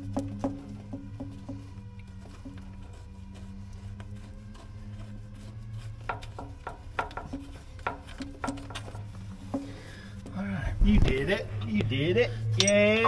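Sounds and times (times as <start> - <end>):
tools scraping on metal: 12.5 - 13.0.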